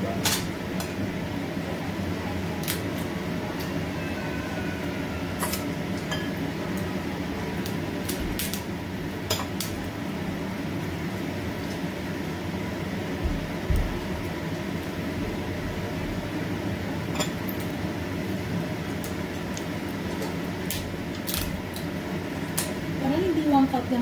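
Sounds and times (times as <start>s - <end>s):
utensils clicking on plates: 5.4s - 6.4s.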